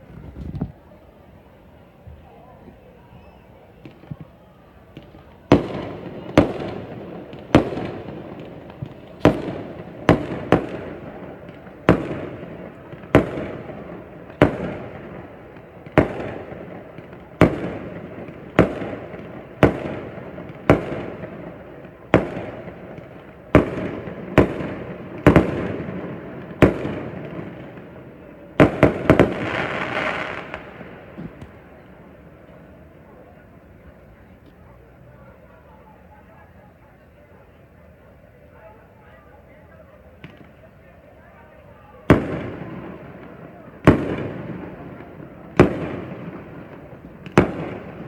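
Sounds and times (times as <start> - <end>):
fireworks bangs echoing: 3.8 - 32.9, 42.0 - 48.0.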